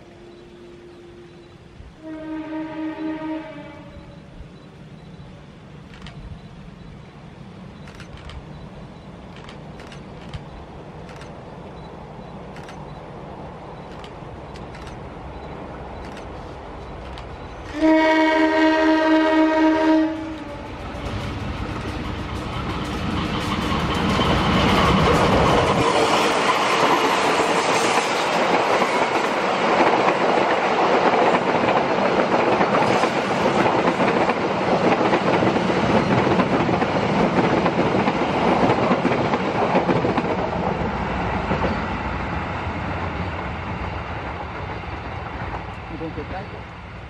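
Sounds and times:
diesel locomotive engine rumble: 0:00.0 - 0:47.0
train wheels clattering on rails: 0:19.5 - 0:42.4, 0:43.1 - 0:46.5.

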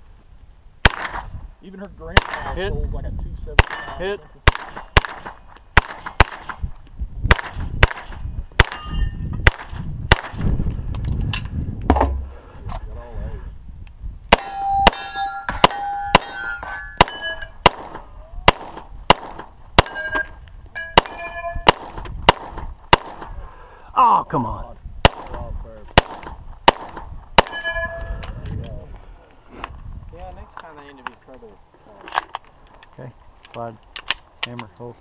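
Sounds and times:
pistol shots: 0:00.8 - 0:01.3, 0:02.2 - 0:02.6, 0:03.6 - 0:06.6, 0:07.3 - 0:08.8, 0:09.4 - 0:10.4, 0:14.3 - 0:20.3, 0:21.0 - 0:23.3, 0:25.0 - 0:28.0
rifle shots: 0:00.8 - 0:01.3, 0:02.2 - 0:02.6, 0:03.6 - 0:06.6, 0:07.3 - 0:08.8, 0:09.4 - 0:10.4, 0:14.3 - 0:20.3, 0:21.0 - 0:23.4, 0:25.0 - 0:28.0
steel targets ringing: 0:08.7 - 0:09.4, 0:14.4 - 0:17.6, 0:19.8 - 0:21.8, 0:23.0 - 0:23.6, 0:27.4 - 0:28.2.

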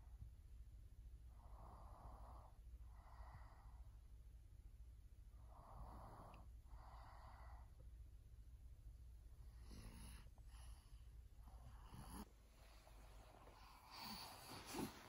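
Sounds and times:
faint slow breathing: 0:05.4 - 0:07.9, 0:09.4 - 0:15.0.

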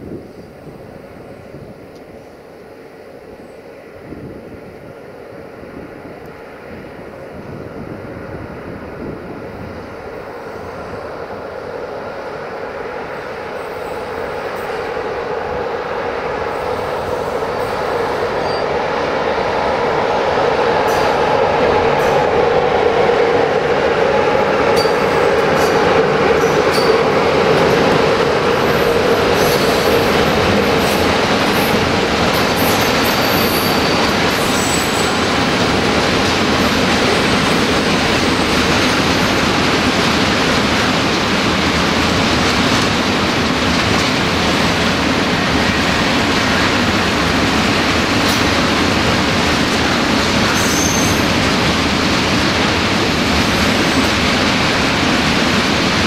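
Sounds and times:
train wheels rumbling: 0:06.2 - 0:56.0
wheel squeals: 0:50.6 - 0:51.3.

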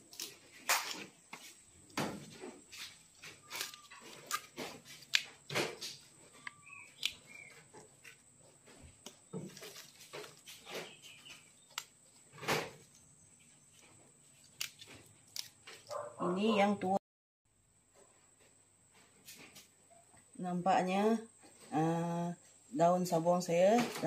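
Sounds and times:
leaves rustling and snapping: 0:00.0 - 0:01.1, 0:02.8 - 0:08.2, 0:09.0 - 0:13.0, 0:13.7 - 0:16.0
bird chirping: 0:06.0 - 0:08.2, 0:10.2 - 0:14.0
leaves dropped into plastic basin: 0:09.0 - 0:12.9.

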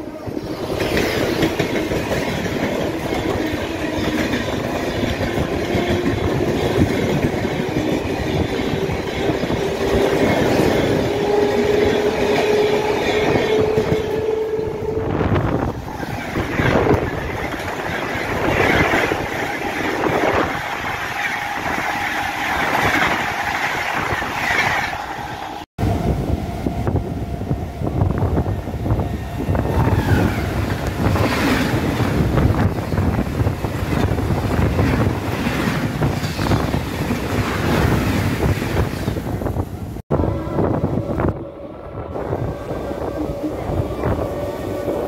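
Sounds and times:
express trains passing: 0:00.0 - 0:45.0
train wheels rumbling on rails: 0:00.0 - 0:45.0
wind rushing past: 0:00.0 - 0:45.0
clickety-clack over rail joints: 0:00.4 - 0:14.5, 0:15.8 - 0:25.2, 0:29.7 - 0:39.6.

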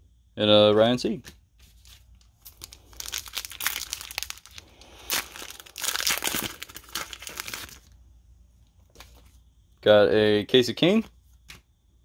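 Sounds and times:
wrapper crinkling: 0:01.7 - 0:08.0
wrapper tearing: 0:02.2 - 0:07.9.

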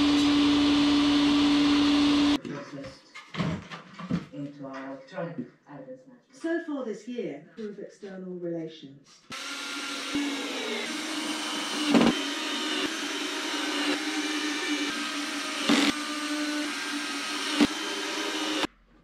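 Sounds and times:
power tool motor whine: 0:00.0 - 0:02.4, 0:09.3 - 0:18.7.

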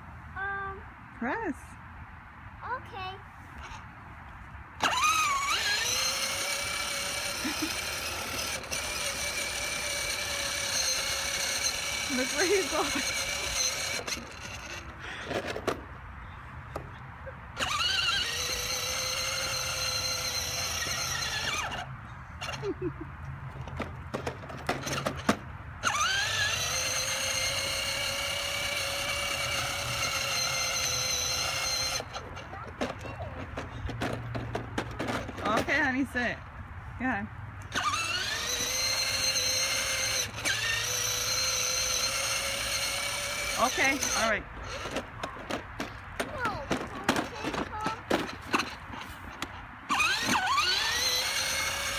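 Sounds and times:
electric motor whine: 0:04.8 - 0:15.7, 0:17.6 - 0:22.6, 0:24.8 - 0:32.2, 0:37.7 - 0:45.1, 0:49.9 - 0:51.9.

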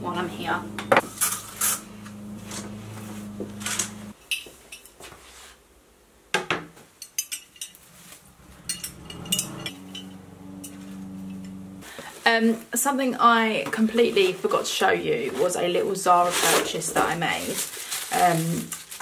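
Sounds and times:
steady low hum: 0:00.0 - 0:04.2, 0:07.6 - 0:12.0
glass vase clinking on metal: 0:08.6 - 0:10.8.

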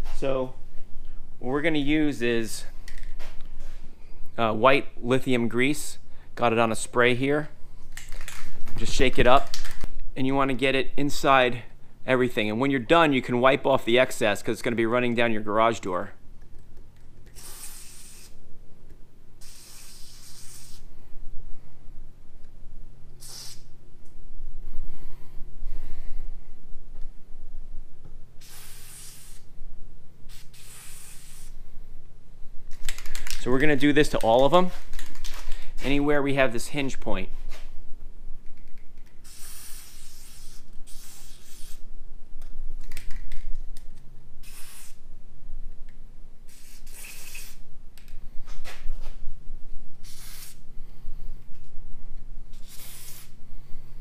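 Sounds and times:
aerosol spray hissing: 0:17.3 - 0:18.4, 0:19.4 - 0:20.9, 0:23.2 - 0:23.7, 0:28.4 - 0:29.5, 0:30.3 - 0:31.6, 0:39.2 - 0:41.8, 0:44.4 - 0:45.0, 0:46.5 - 0:47.6, 0:50.0 - 0:50.6, 0:52.6 - 0:53.4.

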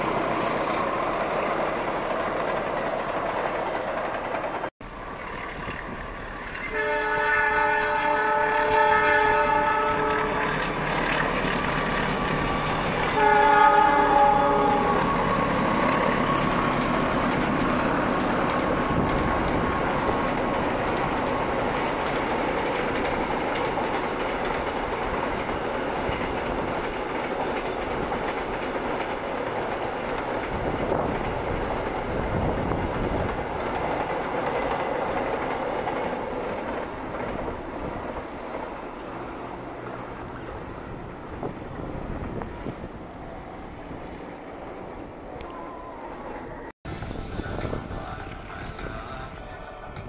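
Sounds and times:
train wheels clattering on rails: 0:08.0 - 0:42.9.

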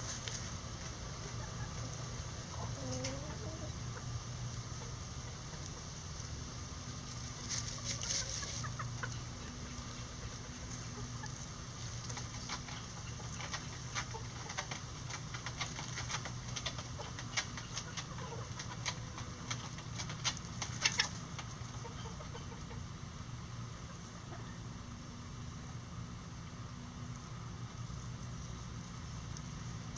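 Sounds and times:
birds scratching in dry leaves: 0:00.0 - 0:22.9
chickens clucking: 0:00.0 - 0:26.6.

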